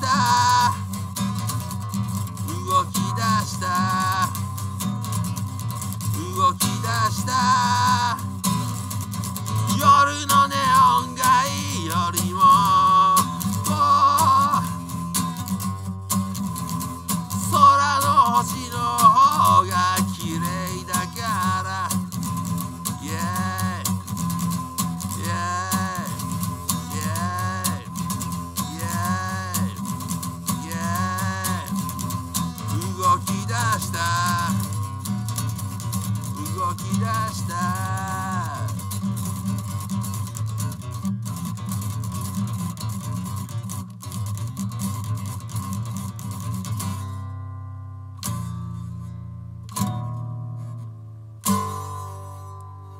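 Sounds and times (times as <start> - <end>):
man singing: 0.0 - 1.4, 2.3 - 5.0, 6.0 - 8.8, 9.5 - 15.1, 17.2 - 38.9
acoustic guitar strumming: 0.0 - 52.9.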